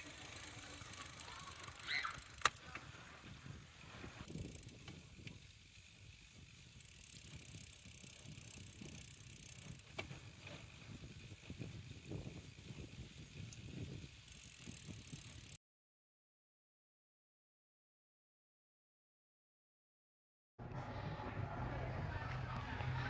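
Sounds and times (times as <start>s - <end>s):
bicycle tyres rumbling on road: 0.0s - 15.6s.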